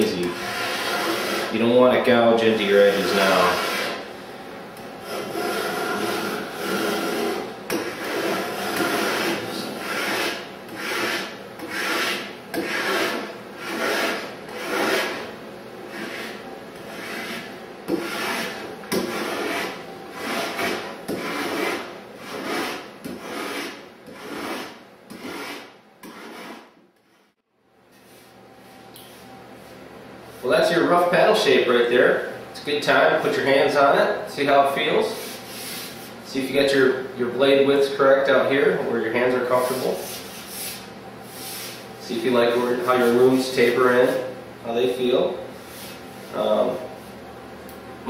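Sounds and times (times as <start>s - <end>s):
rasp scraping wood: 0.0s - 1.6s, 2.7s - 4.0s, 5.0s - 15.3s, 15.9s - 27.3s.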